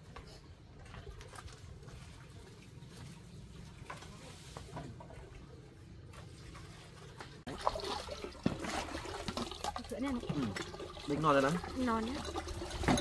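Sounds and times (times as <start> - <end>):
water pouring into a jar: 5.2 - 13.0.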